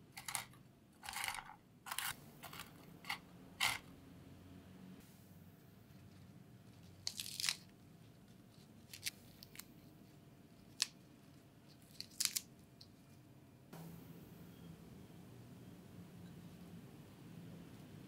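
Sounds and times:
lettuce leaves tearing: 7.0s - 7.7s, 11.8s - 12.5s.

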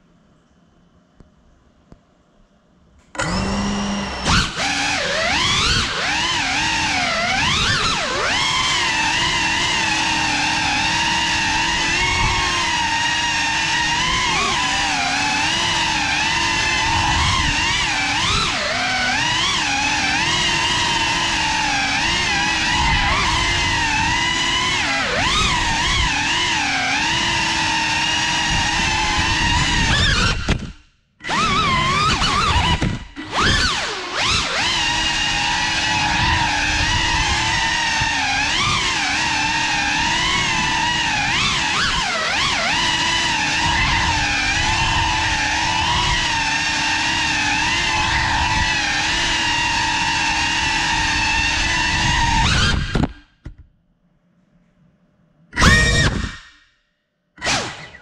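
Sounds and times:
drone motors whining: 3.0s - 53.6s, 55.5s - 56.7s, 57.4s - 58.0s.

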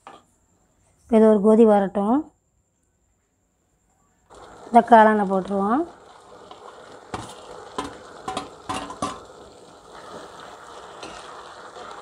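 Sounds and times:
sauce bubbling: 4.3s - 12.0s.

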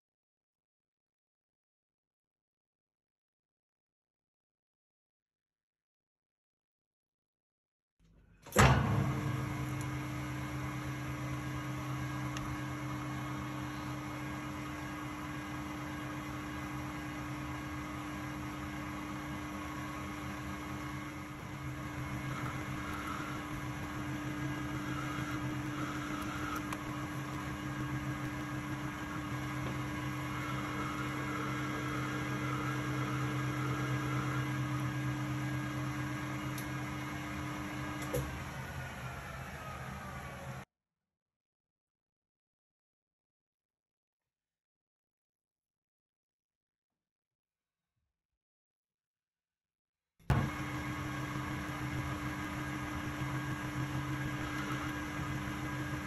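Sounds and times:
metal lathe running: 8.8s - 40.6s, 50.3s - 56.0s.

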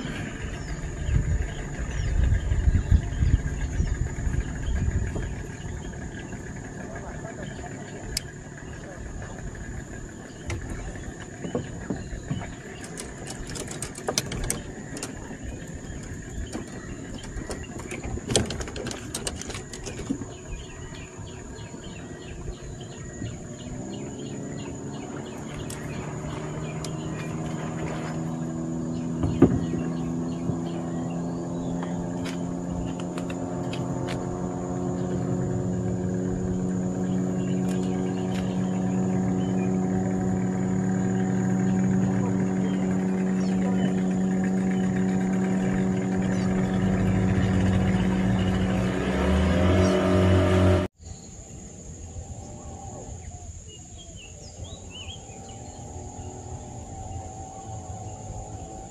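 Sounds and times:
outboard motor running: 0.0s - 51.0s, 52.1s - 58.9s
light clicks and knocks: 10.4s - 20.3s.

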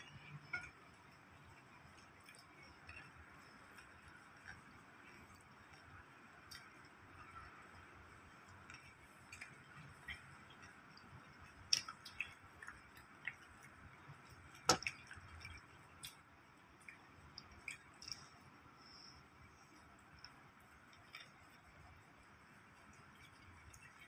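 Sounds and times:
person chewing food: 2.0s - 7.0s, 8.5s - 21.8s.

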